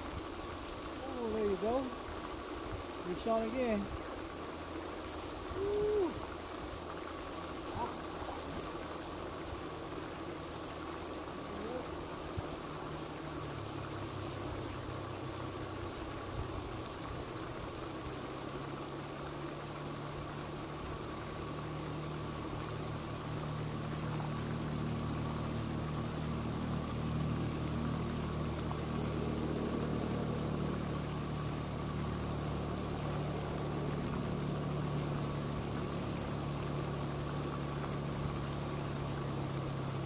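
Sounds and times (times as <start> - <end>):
low engine hum: 0.0 - 40.0.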